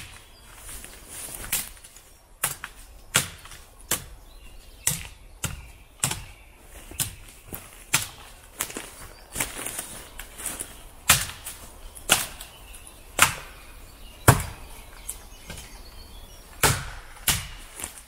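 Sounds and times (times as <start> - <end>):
machete chopping into wood: 11.1 - 11.5, 16.6 - 18.0.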